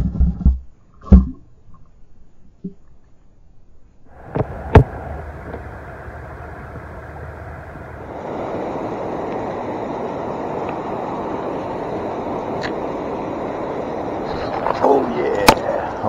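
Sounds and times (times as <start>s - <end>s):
river water rushing over riffles: 4.1s - 16.0s.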